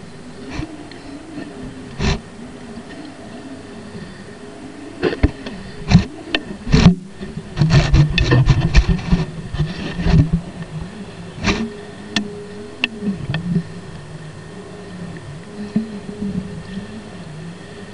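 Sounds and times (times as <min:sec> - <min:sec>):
steady low hum: 0:00.0 - 0:17.9
underwater rumbling: 0:00.0 - 0:17.9
muffled underwater knocks: 0:05.0 - 0:10.6.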